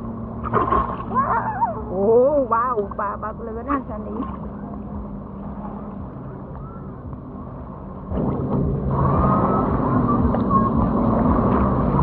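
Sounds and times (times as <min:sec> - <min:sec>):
watercraft engine humming: 0:00.0 - 0:12.0
high-pitched whine: 0:04.3 - 0:12.0.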